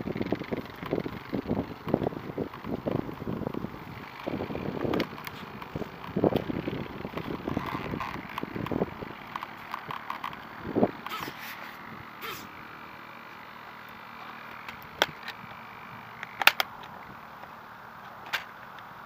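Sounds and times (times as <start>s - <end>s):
sharp clicks: 0.1s - 12.6s, 13.8s - 17.6s
hand rubbing on plastic: 5.1s - 12.5s.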